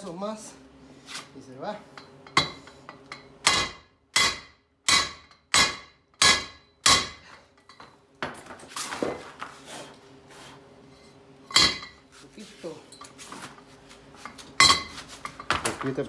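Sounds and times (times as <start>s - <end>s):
hammering steel pipe on metal: 1.9s - 7.4s, 11.5s - 12.0s.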